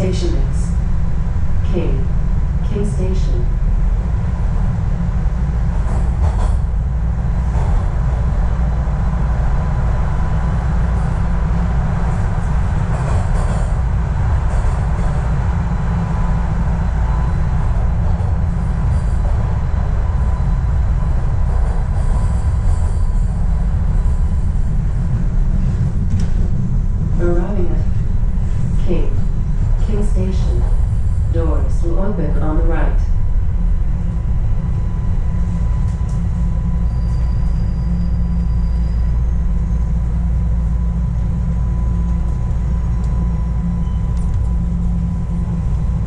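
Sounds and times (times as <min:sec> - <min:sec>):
train wheels rumbling on rail: 0:00.0 - 0:46.0
faint steady whine: 0:15.0 - 0:46.0.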